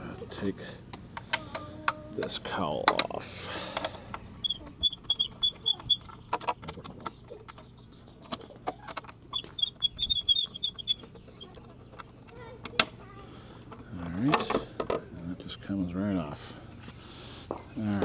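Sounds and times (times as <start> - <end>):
quick high chirps: 4.4 - 6.3, 9.3 - 11.5.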